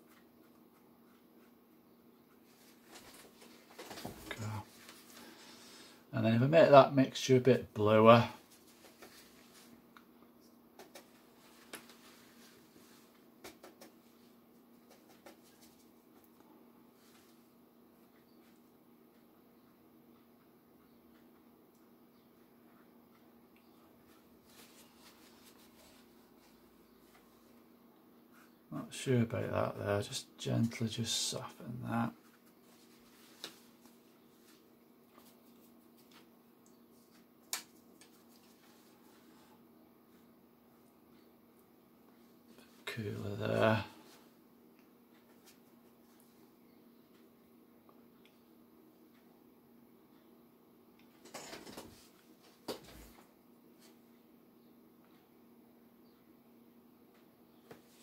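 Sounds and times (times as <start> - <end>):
faint steady hum: 0.0 - 58.0
soft clicks and taps: 9.9 - 12.0.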